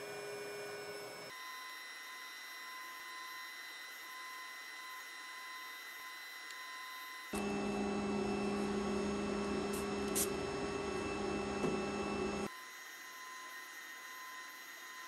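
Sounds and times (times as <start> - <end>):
machine electric hum: 7.3 - 12.5.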